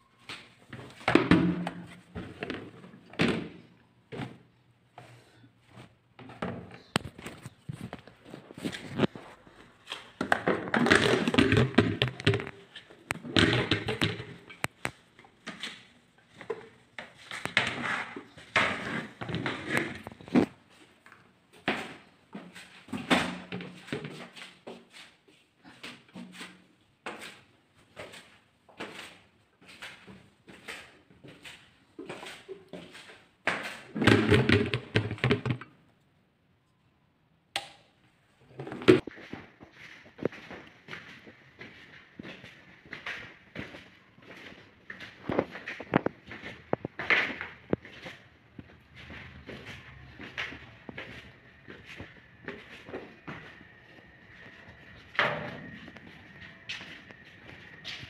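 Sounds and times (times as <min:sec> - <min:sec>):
footsteps on tiled stairs: 0:00.0 - 0:35.6, 0:38.6 - 0:58.0
knocks and thumps: 0:34.0 - 0:35.7.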